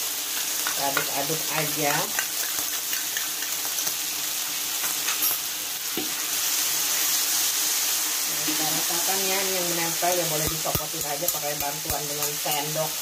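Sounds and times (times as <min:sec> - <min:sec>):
meat sizzling in a wok: 0:00.0 - 0:13.0
metal spoon scraping a pan: 0:10.1 - 0:12.9.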